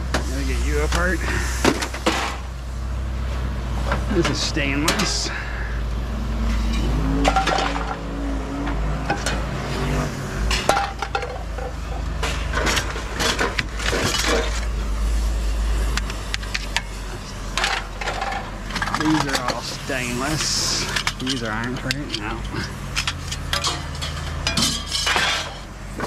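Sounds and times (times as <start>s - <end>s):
steady low rumble: 0.0s - 25.0s
scrap metal clattering: 6.5s - 8.0s, 10.5s - 14.8s, 17.5s - 25.7s.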